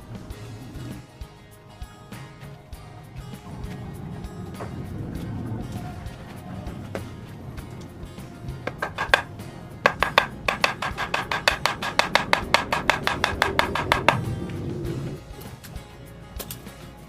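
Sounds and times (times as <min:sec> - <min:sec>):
machete chopping bamboo: 0:09.9 - 0:14.2.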